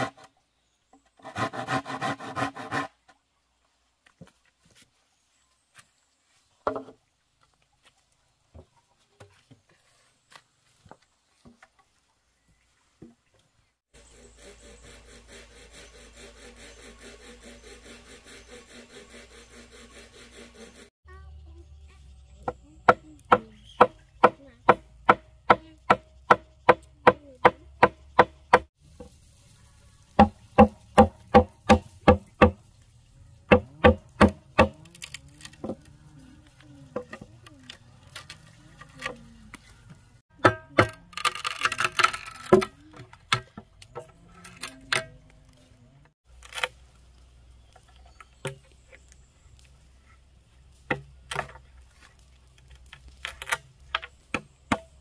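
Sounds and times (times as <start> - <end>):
rasping scrape: 1.2 - 3.0, 14.0 - 20.9
blade chopping bamboo: 22.4 - 28.7, 30.2 - 32.6, 33.5 - 35.9, 40.3 - 45.2, 52.7 - 55.0.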